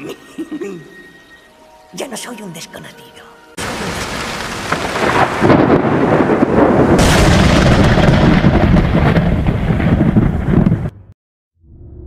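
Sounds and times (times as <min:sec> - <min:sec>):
sharp thunder crack: 0:03.6 - 0:11.2
thunder rumbling: 0:03.6 - 0:11.2.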